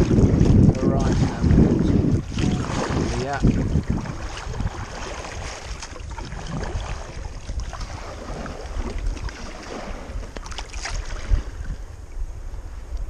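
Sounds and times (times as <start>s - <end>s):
waves splashing against kayak: 0.0s - 12.8s
wind buffeting microphone: 0.0s - 13.0s.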